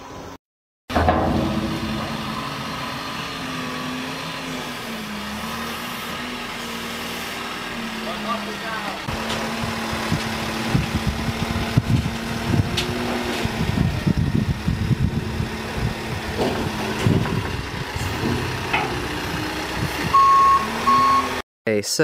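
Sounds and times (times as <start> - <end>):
knocks and thumps: 0.9 - 3.2
diesel engine idling: 0.9 - 12.7, 13.7 - 21.2.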